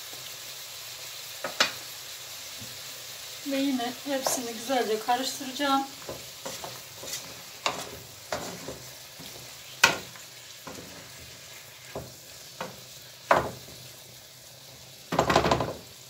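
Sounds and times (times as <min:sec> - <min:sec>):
food sizzling in a frying pan: 0:00.0 - 0:16.0
wooden spoon knocking and scraping pan: 0:01.4 - 0:01.8, 0:04.2 - 0:04.7, 0:05.9 - 0:13.8, 0:15.1 - 0:15.8.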